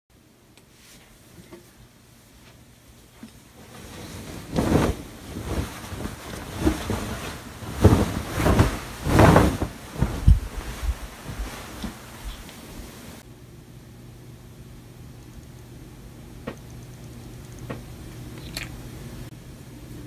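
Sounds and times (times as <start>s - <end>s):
bedding rustling: 2.3s - 13.2s.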